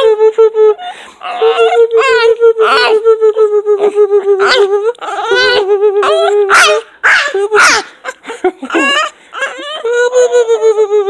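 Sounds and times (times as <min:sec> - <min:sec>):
dog howling and yelping: 0:01.2 - 0:03.0, 0:04.4 - 0:10.7.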